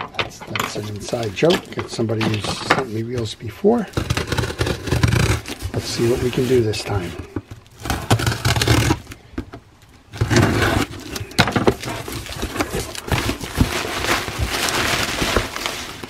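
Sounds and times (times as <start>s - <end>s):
cardboard scraping and rustling: 0.4s - 9.2s, 10.1s - 16.0s.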